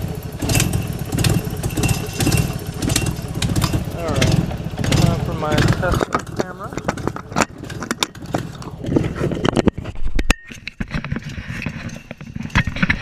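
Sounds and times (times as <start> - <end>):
car engine idling: 0.0 - 9.7
engine clicks and knocks: 0.0 - 13.0.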